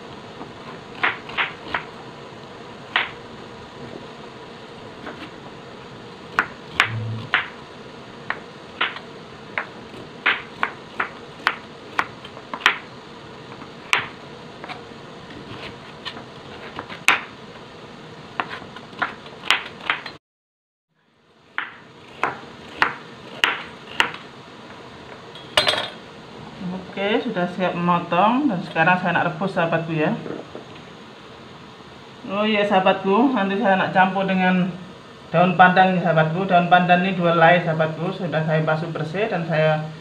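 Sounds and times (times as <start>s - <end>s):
knife chopping on plastic board: 18.4s - 20.1s, 21.6s - 24.2s.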